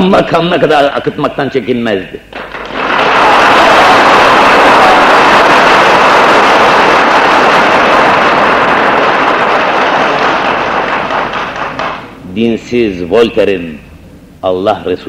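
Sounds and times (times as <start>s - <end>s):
large audience applauding: 2.3s - 12.2s.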